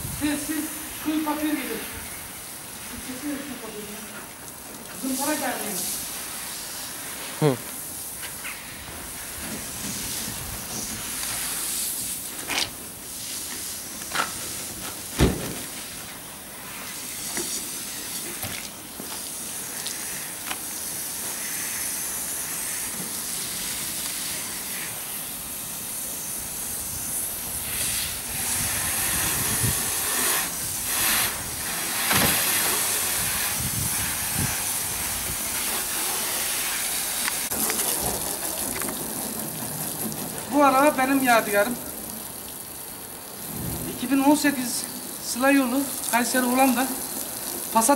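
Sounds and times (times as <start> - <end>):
water spraying from hose: 0.0 - 47.9
brush scrubbing car: 5.0 - 15.1, 19.0 - 41.0.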